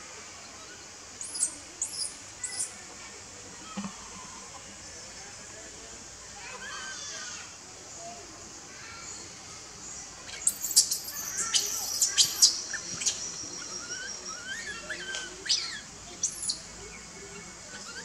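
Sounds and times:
thin steady whistling tone: 0:10.3 - 0:18.0
high-pitched animal chirps: 0:10.4 - 0:16.6.

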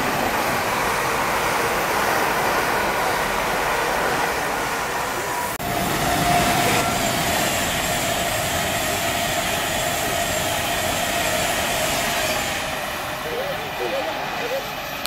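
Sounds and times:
train wheels rushing on rail: 0:00.0 - 0:15.0
steady whine: 0:04.3 - 0:15.0.

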